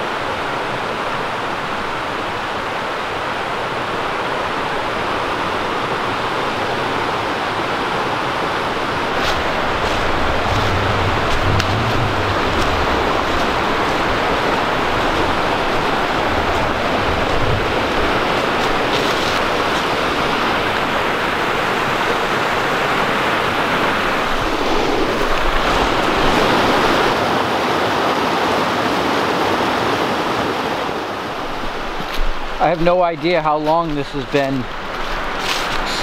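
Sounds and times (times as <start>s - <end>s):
brook rushing over rocks: 5.5s - 27.2s, 31.3s - 36.0s.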